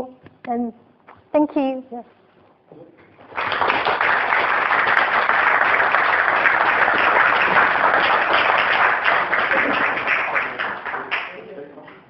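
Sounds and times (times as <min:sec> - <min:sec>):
audience applauding: 0:03.2 - 0:11.7.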